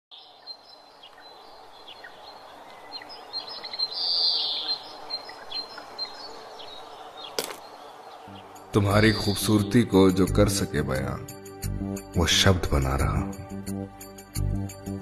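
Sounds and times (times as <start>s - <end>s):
birds chirping and calling: 0.2s - 10.8s.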